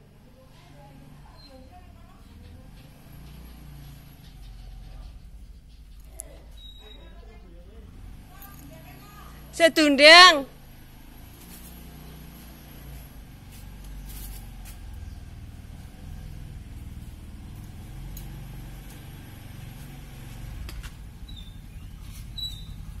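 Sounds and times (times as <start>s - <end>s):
vehicle engine rumbling: 0.0s - 23.0s
faint high chirps: 1.3s - 7.3s.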